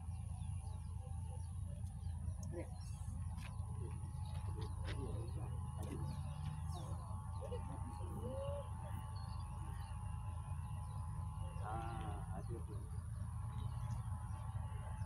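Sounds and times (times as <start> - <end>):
bird calls: 0.0 - 15.0
dove cooing: 4.4 - 9.1.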